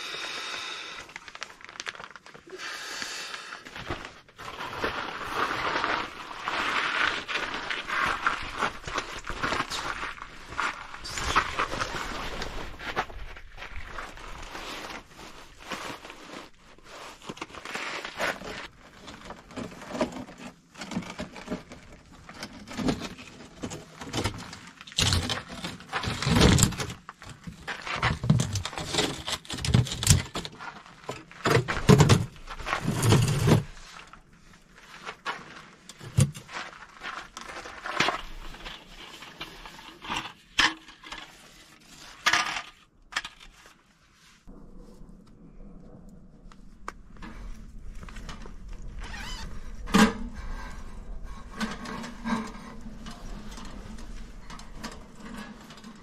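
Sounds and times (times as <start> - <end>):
sleeping pad rustling on gravel: 4.2 - 19.2.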